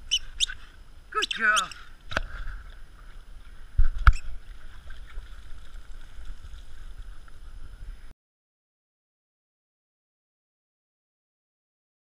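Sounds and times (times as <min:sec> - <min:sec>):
pool water sloshing: 0:04.2 - 0:07.4.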